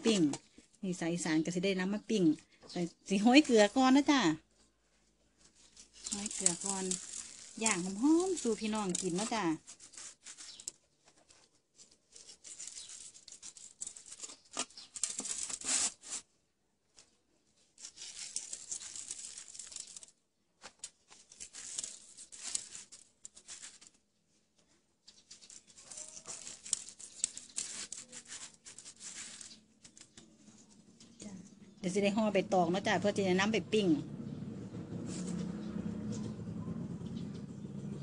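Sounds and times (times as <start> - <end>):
gritty salt scratching: 5.4 - 16.3, 17.8 - 20.1, 20.8 - 24.0, 25.1 - 31.2.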